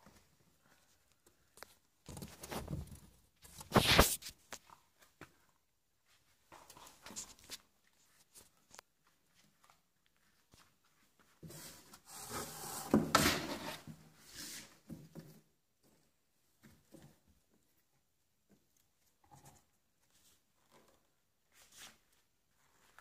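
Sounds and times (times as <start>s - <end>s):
rubbing and scraping on cardboard: 3.6s - 4.4s, 11.4s - 14.9s.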